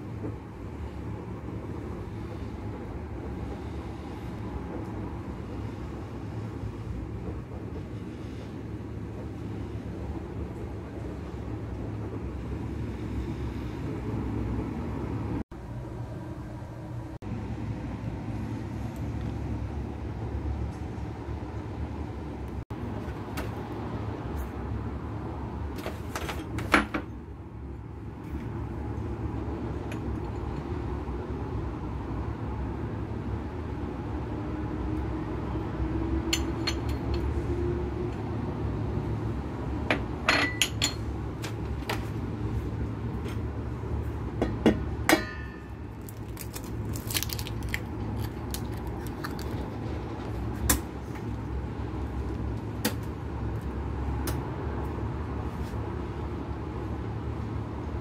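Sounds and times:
steady low hum: 0:00.0 - 0:25.8.

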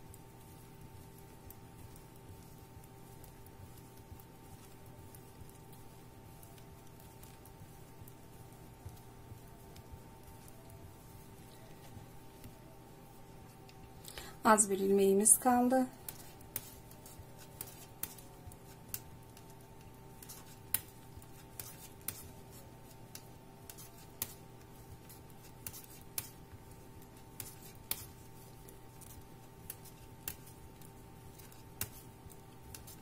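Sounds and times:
faint steady hum: 0:00.0 - 0:33.0
knitting needles clicking: 0:16.0 - 0:24.4.

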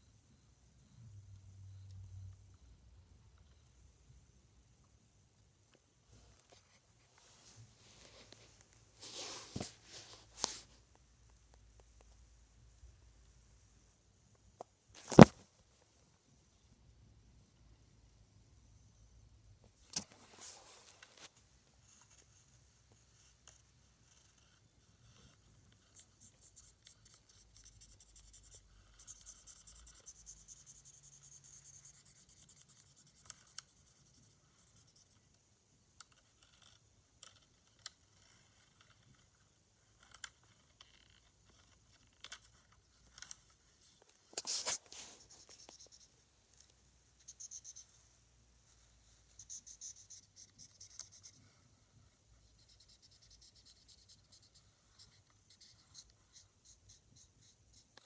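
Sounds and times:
faint scratching and rubbing: 0:06.0 - 0:10.9, 0:19.7 - 0:35.4, 0:36.1 - 0:58.0.

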